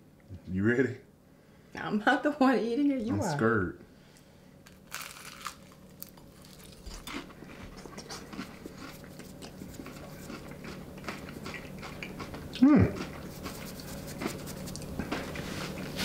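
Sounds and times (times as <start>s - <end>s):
crunchy bites of fried chicken: 4.7s - 7.3s
chewing: 4.8s - 16.0s.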